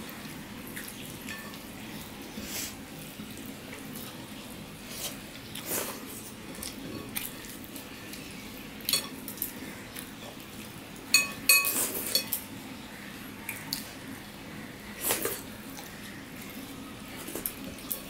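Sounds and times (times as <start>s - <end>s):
clinks against china plates: 11.1s - 12.4s.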